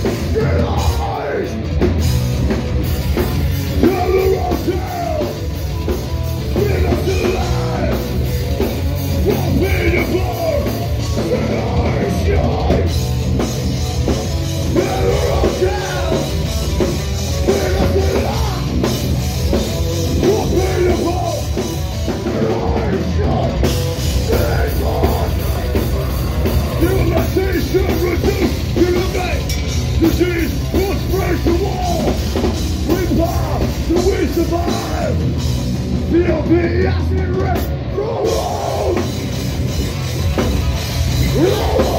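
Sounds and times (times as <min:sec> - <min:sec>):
bass guitar: 0:00.0 - 0:41.9
driving drum kit: 0:00.0 - 0:41.9
heavy distorted guitars: 0:00.0 - 0:41.9.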